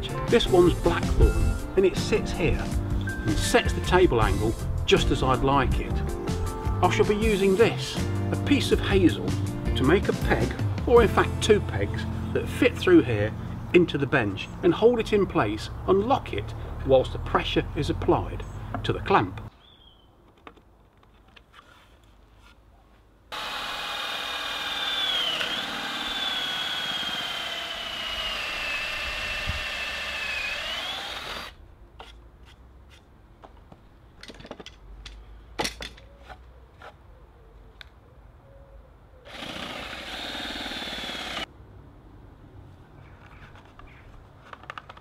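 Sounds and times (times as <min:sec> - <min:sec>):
cordless drill boring into wood: 0:23.3 - 0:31.6, 0:39.3 - 0:41.5.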